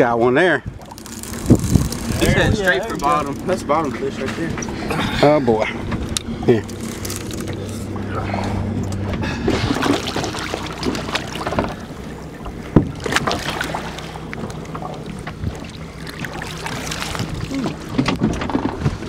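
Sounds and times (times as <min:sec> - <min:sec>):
boat engine humming: 0:00.0 - 0:19.0
water noise: 0:00.0 - 0:19.0
wind: 0:00.0 - 0:19.0
fish splashing at surface: 0:09.4 - 0:11.9, 0:13.0 - 0:18.0.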